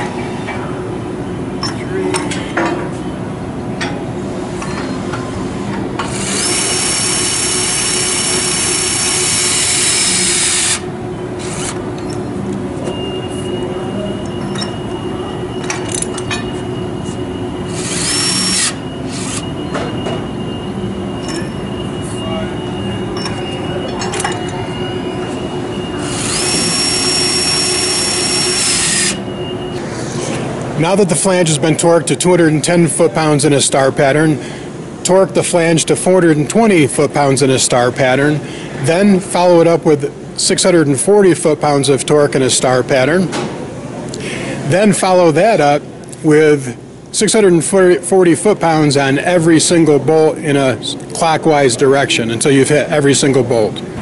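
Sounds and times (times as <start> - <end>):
torque wrench motor whine: 6.0 - 12.2, 17.7 - 19.6, 25.9 - 29.3.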